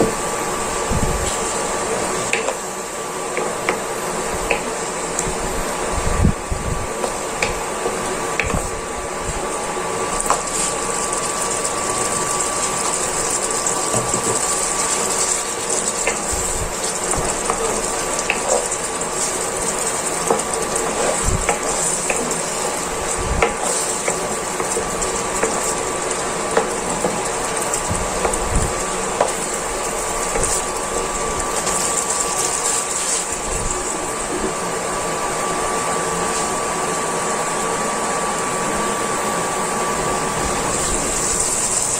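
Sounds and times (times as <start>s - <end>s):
cooling fan whirring: 0.0s - 41.9s
sauce simmering and bubbling: 6.9s - 38.5s
wooden spatula clicks and scrapes: 13.9s - 22.6s, 23.4s - 28.5s.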